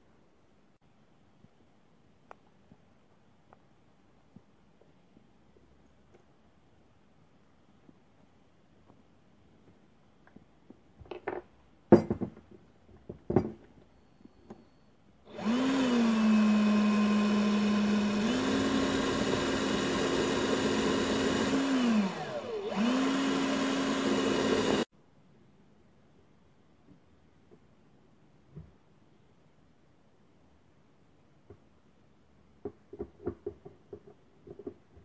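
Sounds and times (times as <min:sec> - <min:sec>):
cordless drill motor running: 0:15.3 - 0:24.9.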